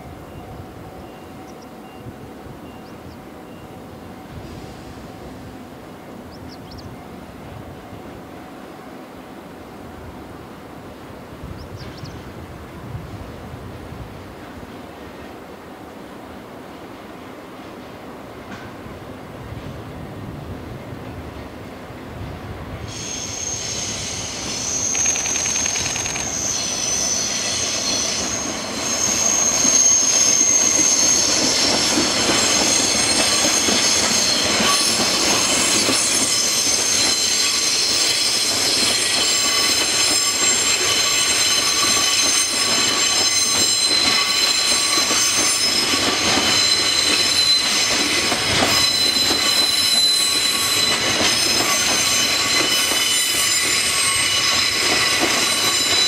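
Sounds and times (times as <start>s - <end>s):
train wheels squealing: 0.0s - 5.5s, 11.5s - 12.4s, 22.2s - 56.0s
freight train rolling past: 0.0s - 56.0s
rail joint clicks: 17.5s - 19.9s, 22.3s - 56.0s.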